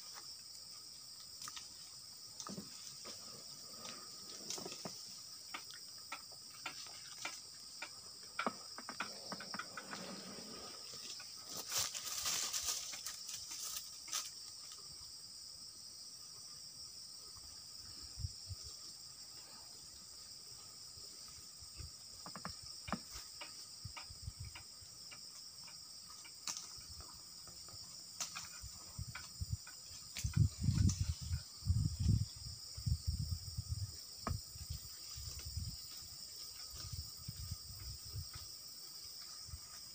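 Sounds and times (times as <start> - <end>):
insects chirring: 0.0 - 39.9
rustling: 9.1 - 14.4.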